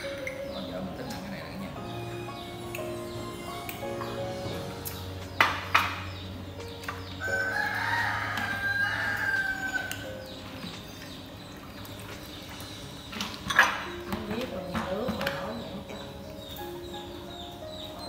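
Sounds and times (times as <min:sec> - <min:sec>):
rooster crowing: 0:07.2 - 0:10.1.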